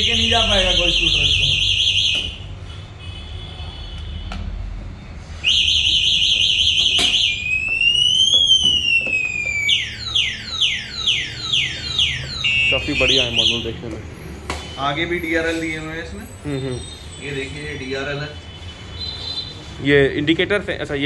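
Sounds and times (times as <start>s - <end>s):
scooter alarm siren: 0.0s - 2.5s, 5.4s - 13.8s.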